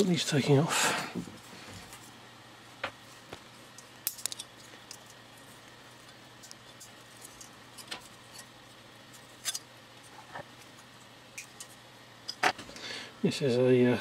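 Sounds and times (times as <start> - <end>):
faint steady hum: 0.0 - 14.0
thin metal clicks and scrapes: 3.7 - 5.2, 6.0 - 9.7, 11.4 - 12.5.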